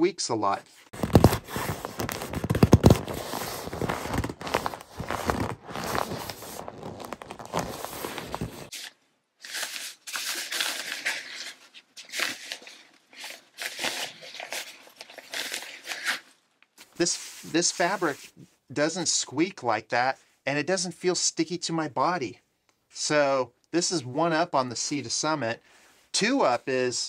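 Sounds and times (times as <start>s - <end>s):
fabric rustling: 0.8s - 8.7s
sleeping pad squeaking and crinkling: 0.9s - 8.7s.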